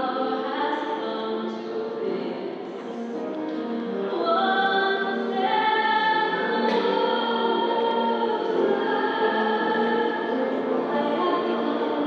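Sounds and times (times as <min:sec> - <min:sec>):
choir singing long held notes: 0:02.8 - 0:12.0.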